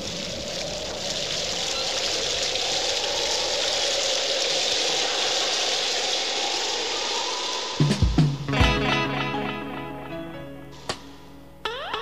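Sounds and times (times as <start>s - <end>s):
steady water-like rushing: 0.0s - 8.6s.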